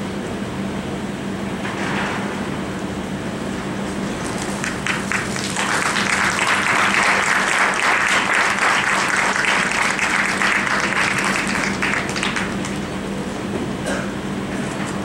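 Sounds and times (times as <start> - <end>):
steady low hum: 0.0 - 15.0
audience applauding: 4.4 - 12.8.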